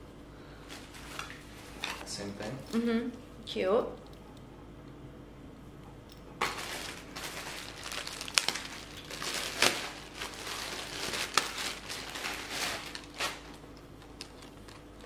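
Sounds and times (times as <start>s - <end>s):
packaging crinkling and rustling: 0.6s - 2.2s, 6.4s - 15.0s.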